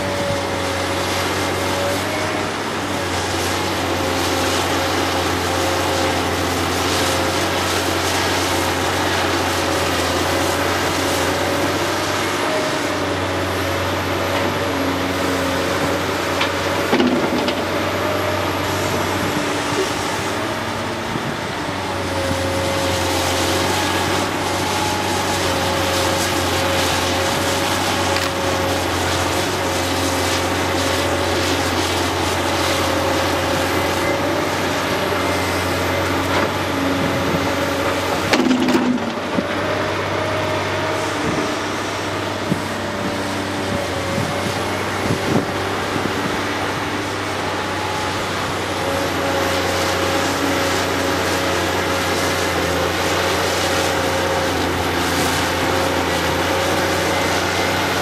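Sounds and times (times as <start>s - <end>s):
constant whine: 0.0s - 58.0s
excavator engine and hydraulics: 0.0s - 58.0s
rock and soil clattering: 16.0s - 18.4s, 22.9s - 39.5s.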